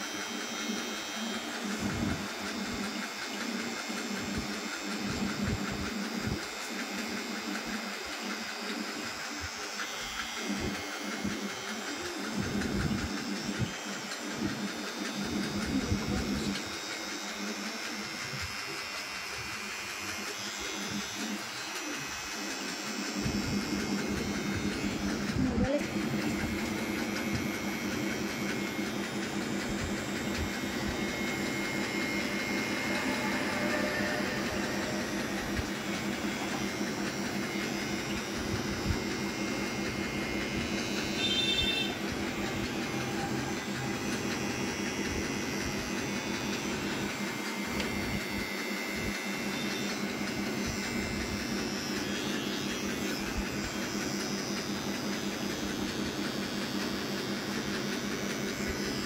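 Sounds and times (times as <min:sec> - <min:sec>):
hair trimmer buzzing: 0:00.0 - 0:59.0.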